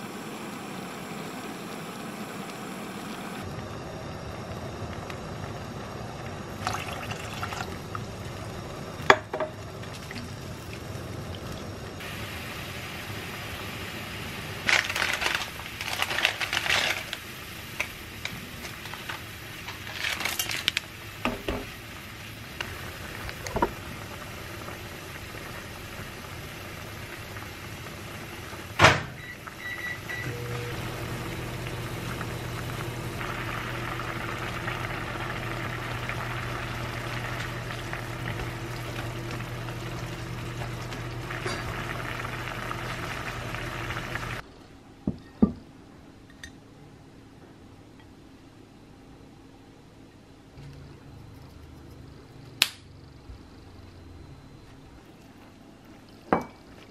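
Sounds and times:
broth boiling in a pan: 0.0s - 44.4s
microwave oven humming: 0.0s - 44.4s
utensils clattering and stirring: 14.7s - 21.7s, 40.6s - 41.9s.

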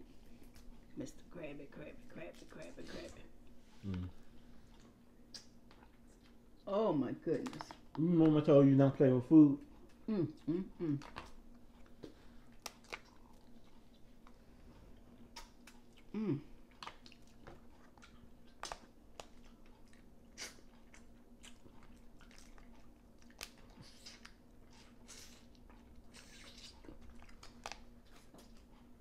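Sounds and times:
person humming: 3.8s - 4.2s, 10.1s - 11.1s, 16.1s - 16.5s
chewing: 9.6s - 29.0s.

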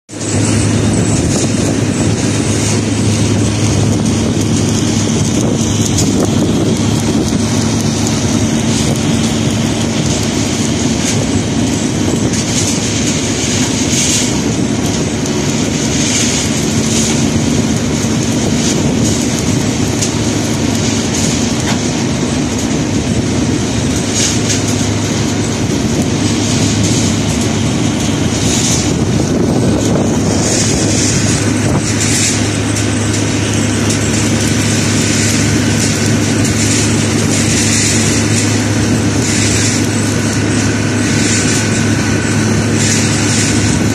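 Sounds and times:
construction machinery drone: 0.1s - 43.9s.

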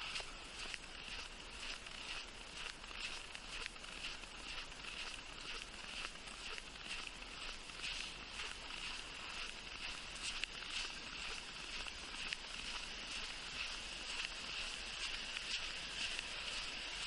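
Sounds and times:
footsteps crunching in snow: 0.0s - 17.0s.

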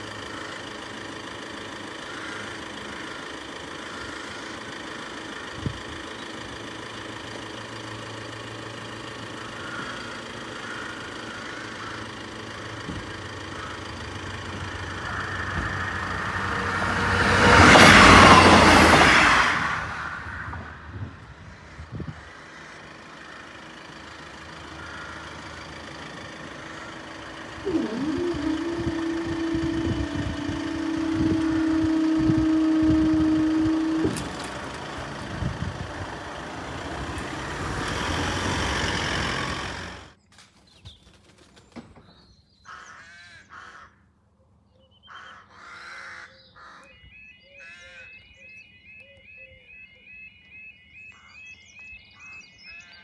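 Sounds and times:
crows cawing: 0.1s - 0.8s, 1.8s - 5.0s, 9.3s - 17.6s, 21.4s - 23.9s, 24.5s - 34.0s, 42.7s - 44.2s, 45.1s - 48.2s, 51.2s - 51.5s
bird calls: 9.2s - 16.7s, 21.4s - 36.1s, 40.6s - 53.0s
train passing with wheel clatter: 14.2s - 21.4s
steady held tone: 27.4s - 37.1s.

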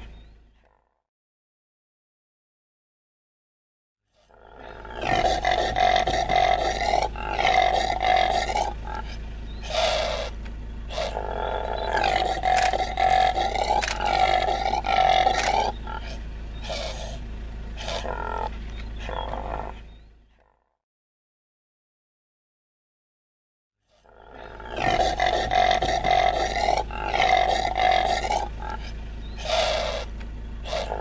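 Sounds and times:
impala roaring calls: 4.1s - 20.6s, 23.9s - 31.0s
steady low hum: 4.4s - 20.3s, 24.3s - 31.0s.

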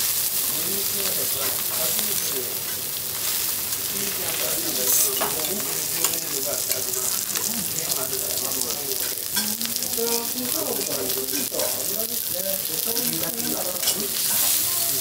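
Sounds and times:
steak sizzling on a griddle: 0.0s - 15.0s
knife and spatula clinking on steel: 13.0s - 14.6s.

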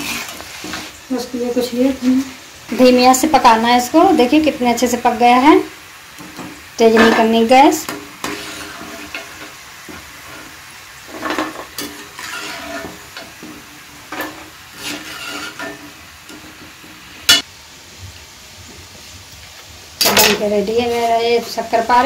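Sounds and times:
metal spoon scraping a pan: 0.0s - 1.0s, 6.2s - 17.4s
dough sizzling in hot oil: 0.0s - 22.0s.

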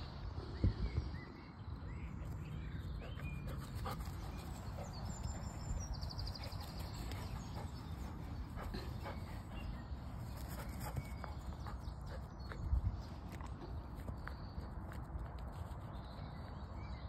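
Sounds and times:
wind on microphone: 0.0s - 1.6s.

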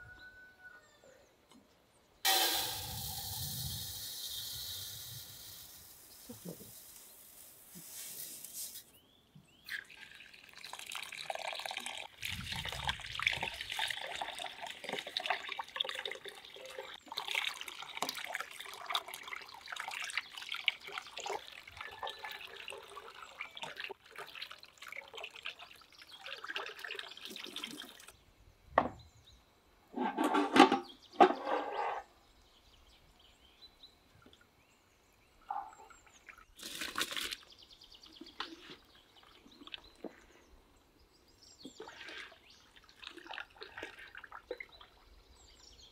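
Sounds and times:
tap water running into basin: 9.7s - 28.1s
thump: 28.8s - 29.0s.

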